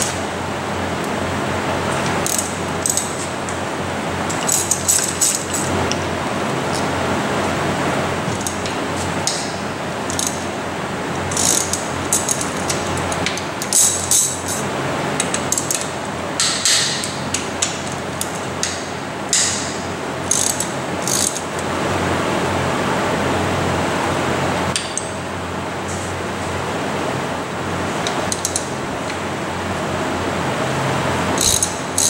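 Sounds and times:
ratchet and wrenches clinking: 0:04.3 - 0:05.7, 0:13.6 - 0:14.6, 0:20.3 - 0:21.4, 0:31.4 - 0:32.0.

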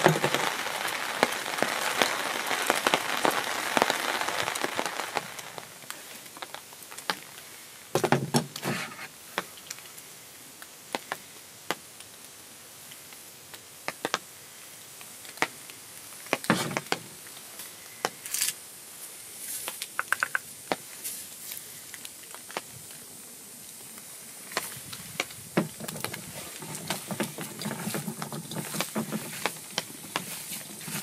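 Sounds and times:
knocks and rustles: 0:08.0 - 0:09.1, 0:16.3 - 0:17.1, 0:24.5 - 0:31.0.

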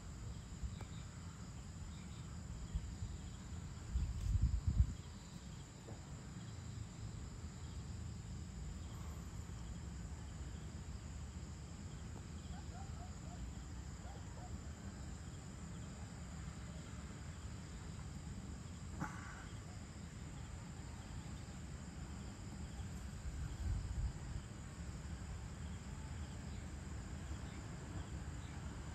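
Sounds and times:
insects trilling: 0:00.0 - 0:28.9
low unsteady rumble: 0:01.5 - 0:05.3.

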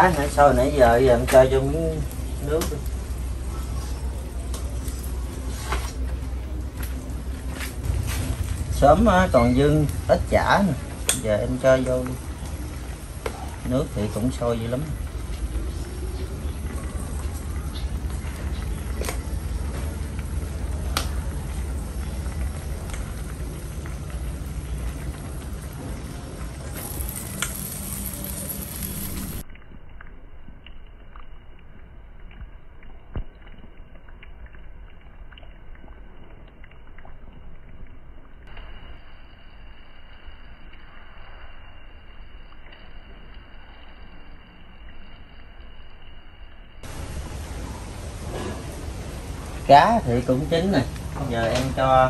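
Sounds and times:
soup boiling: 0:00.0 - 0:46.0, 0:46.8 - 0:52.0
soft bubbling in clay pot: 0:00.0 - 0:52.0
gas stove burner: 0:07.7 - 0:15.9.

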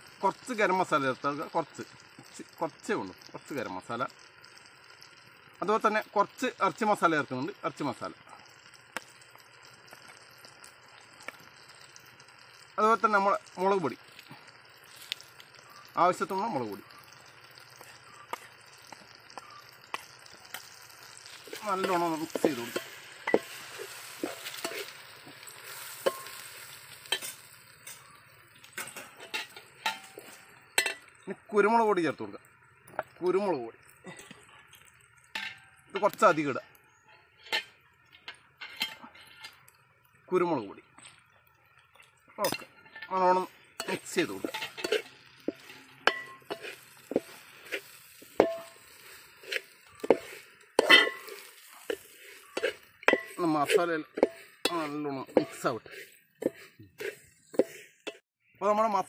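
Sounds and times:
frying sizzle: 0:00.0 - 0:59.0
metal spatula scraping pot: 0:17.2 - 0:31.2, 0:34.1 - 0:39.8, 0:41.9 - 0:58.2.

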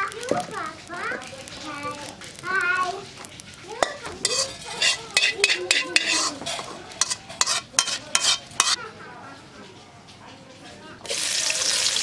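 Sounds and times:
metal scoop clinking against bowl: 0:03.8 - 0:08.8.

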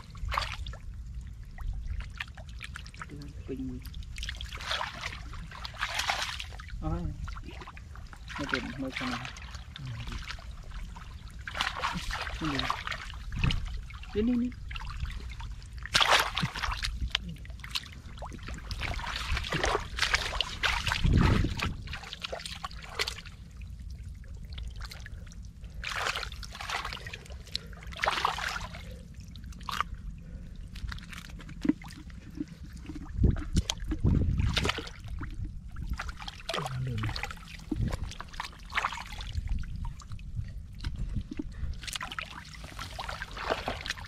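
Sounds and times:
sloshing in muddy water: 0:00.0 - 0:44.0
wet mud slaps: 0:15.9 - 0:23.2, 0:33.2 - 0:34.9.

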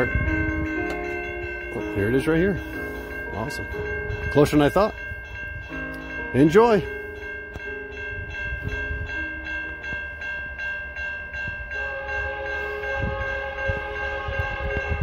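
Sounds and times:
freight train approaching: 0:00.0 - 0:15.0
train air horn chord: 0:11.8 - 0:15.0.

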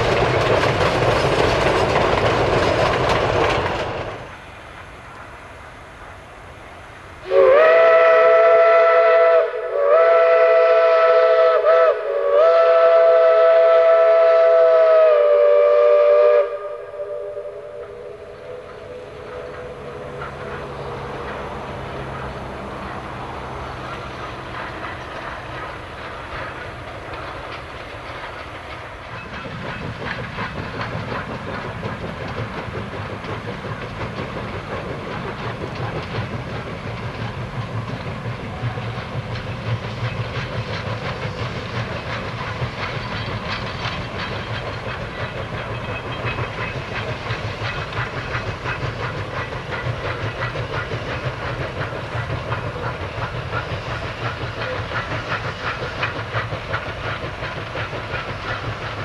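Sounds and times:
wheels clattering over rail joints: 0:00.0 - 0:05.6, 0:18.3 - 0:59.0
steam exhaust and hiss: 0:00.0 - 0:59.0.

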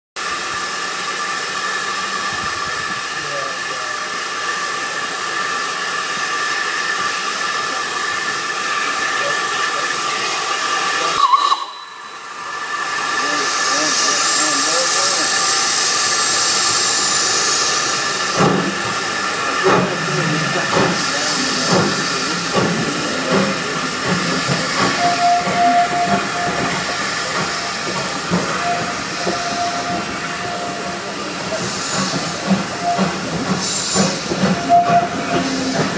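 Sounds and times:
steam locomotive hissing steam: 0:00.2 - 0:35.9
faint high whistling tone: 0:25.0 - 0:26.7.

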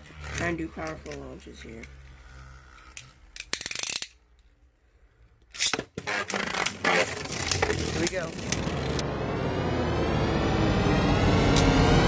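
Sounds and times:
plastic ripcord rasping: 0:00.0 - 0:04.5, 0:05.5 - 0:08.6.

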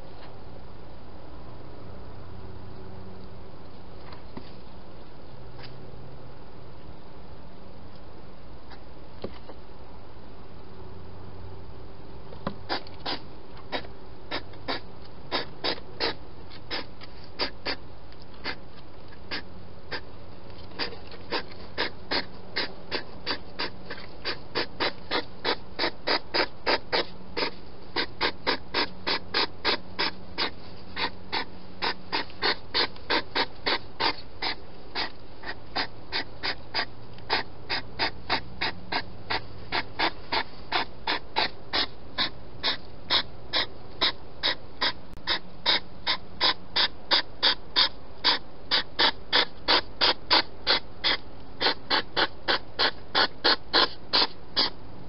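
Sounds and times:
hedgehog chewing: 0:20.6 - 0:54.7.

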